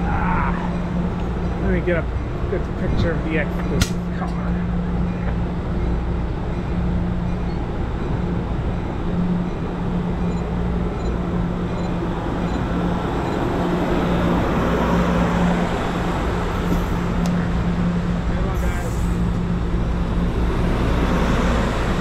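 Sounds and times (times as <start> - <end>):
low engine drone: 0.0 - 22.0
train wheels rumbling on rails: 0.0 - 22.0.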